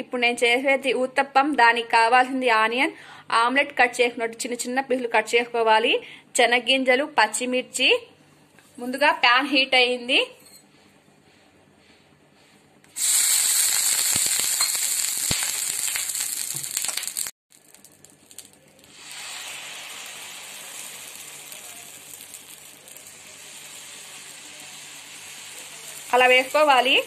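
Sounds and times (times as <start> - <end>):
hot griddle hissing: 13.0 - 17.3, 18.8 - 27.0
batter sizzling on griddle: 13.0 - 27.0.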